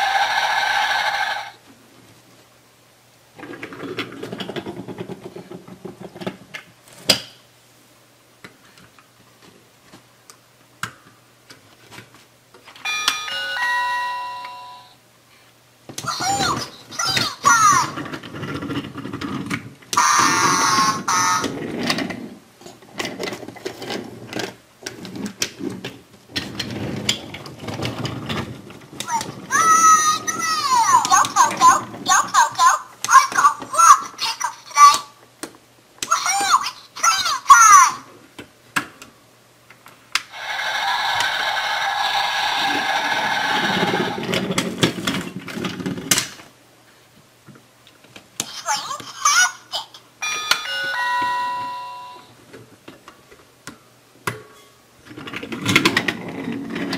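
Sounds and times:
wooden toy train rolling: 0:00.0 - 0:01.5, 0:03.4 - 0:06.5, 0:16.1 - 0:34.1, 0:40.4 - 0:46.3, 0:55.0 - 0:56.9
toy crossing electronic alarm: 0:12.8 - 0:15.0, 0:20.0 - 0:21.5, 0:50.2 - 0:52.3
toy train wheels rattling on track: 0:40.3 - 0:44.2.

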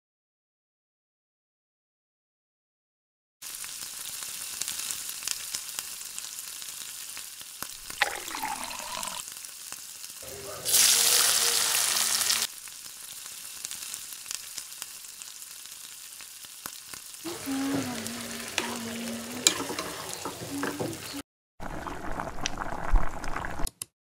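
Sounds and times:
onions sizzling in hot oil: 0:03.4 - 0:23.7
spoon scraping and clinking pan: 0:18.4 - 0:21.2.

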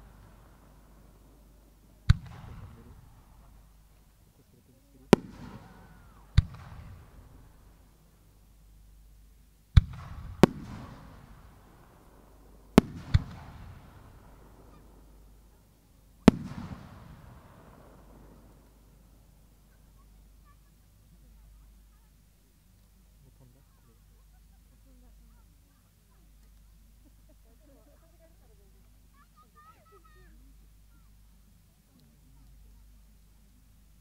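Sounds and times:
firework bangs with echo: 0:00.0 - 0:03.6, 0:05.1 - 0:07.6, 0:09.8 - 0:15.4, 0:16.2 - 0:19.1.

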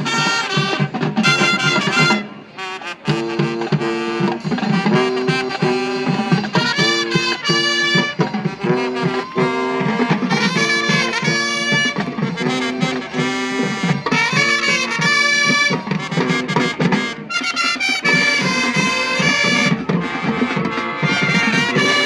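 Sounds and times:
steady drum beat: 0:00.0 - 0:02.3, 0:02.9 - 0:22.0
brass and saxophone chords: 0:00.0 - 0:22.0.

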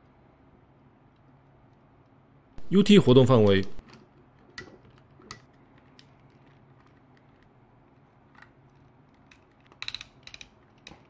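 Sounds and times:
action figure joints clicking: 0:09.3 - 0:11.0.

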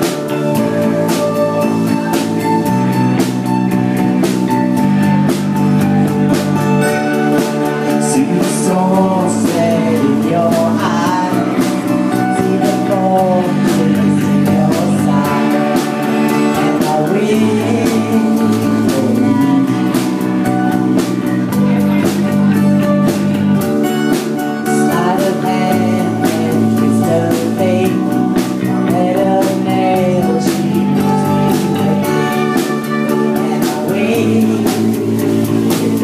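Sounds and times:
acoustic guitar strumming: 0:00.0 - 0:36.0
drum kit: 0:00.0 - 0:36.0
man singing: 0:07.3 - 0:23.3, 0:24.4 - 0:36.0.

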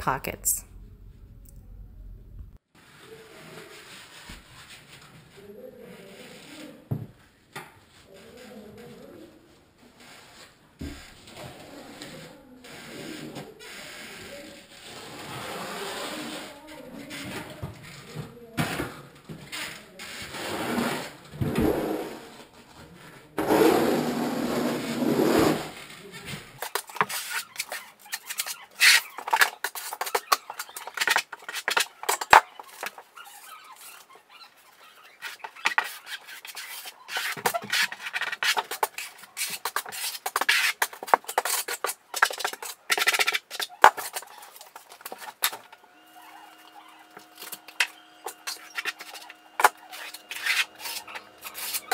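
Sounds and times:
trowel scraping mortar: 0:10.0 - 0:17.6, 0:23.4 - 0:26.0, 0:26.6 - 0:51.9.

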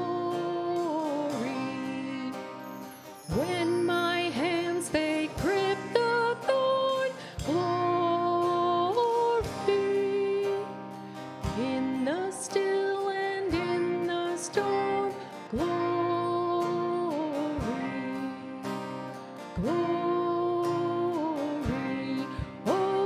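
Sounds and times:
electric guitar: 0:00.0 - 0:23.0
strummed acoustic guitar: 0:00.0 - 0:23.0.

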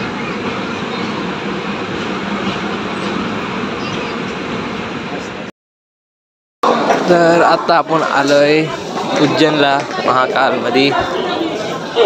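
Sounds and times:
passenger train rolling past: 0:00.0 - 0:05.5.

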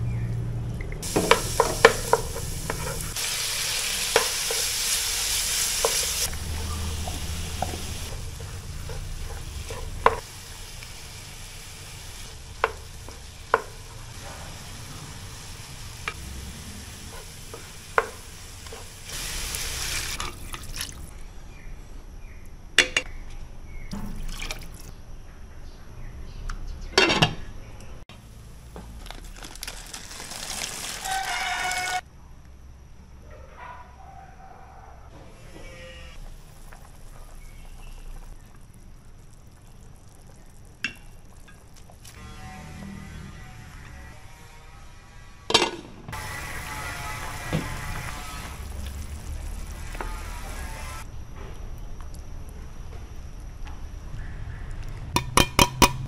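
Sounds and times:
food sizzling in a pot: 0:01.0 - 0:21.1, 0:28.3 - 0:32.0, 0:36.2 - 0:42.2, 0:46.1 - 0:51.1
wooden spoon stirring: 0:01.1 - 0:10.2
spoon knocking against pot: 0:55.2 - 0:56.0.

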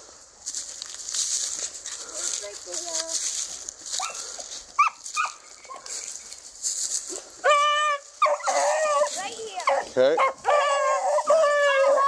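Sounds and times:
dog yelping and crying: 0:04.8 - 0:05.8, 0:07.4 - 0:12.0.

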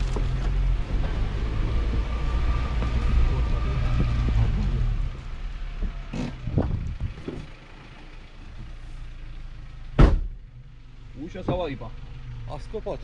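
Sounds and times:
car engine running hard: 0:00.0 - 0:13.0
loud sharp thump: 0:10.0 - 0:10.4.

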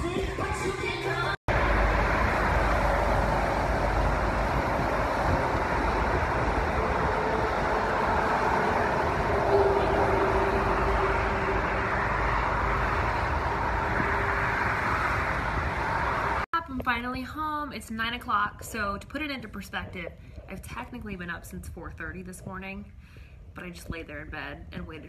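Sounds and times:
road traffic: 0:01.2 - 0:16.5.

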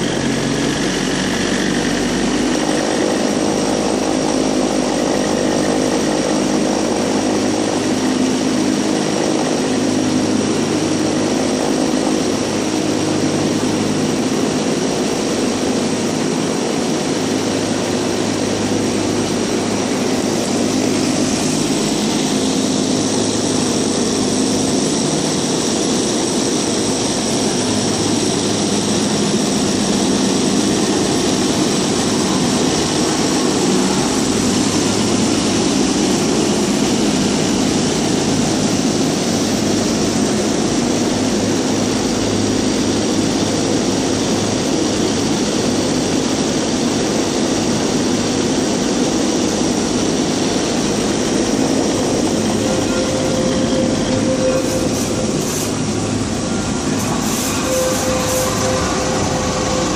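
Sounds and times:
tram mechanical whirring hum: 0:00.0 - 0:59.9.

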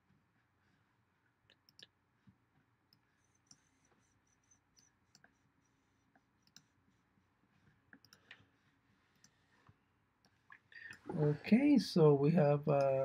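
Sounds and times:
faint computer clicks: 0:06.1 - 0:06.7, 0:07.9 - 0:08.4.

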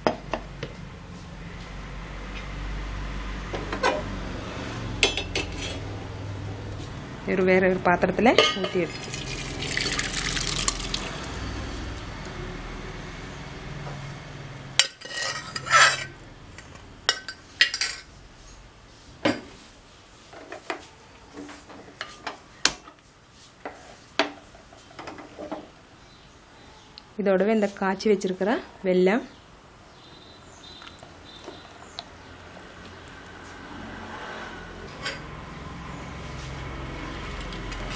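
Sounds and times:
metal vessels clinking and knocking: 0:05.0 - 0:05.8, 0:08.4 - 0:11.1
liquid pouring and splashing into pot: 0:08.9 - 0:11.4.

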